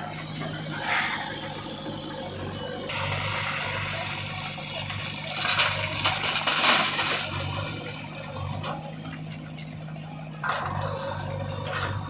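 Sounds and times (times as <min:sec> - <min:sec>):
diesel engine running: 0:00.0 - 0:12.0
stone pouring into trolley: 0:02.9 - 0:07.9.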